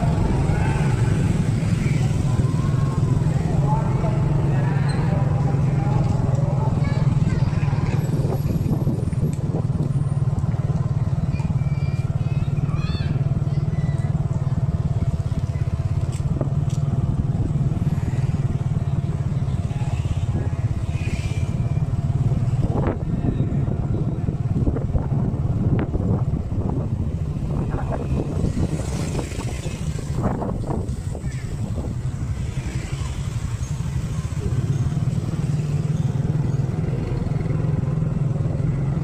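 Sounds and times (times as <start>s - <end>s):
motorbike engine rumbling: 0.0s - 39.0s
road noise: 0.0s - 39.0s
street traffic: 0.0s - 39.0s
small motorcycle engine running: 27.4s - 39.0s.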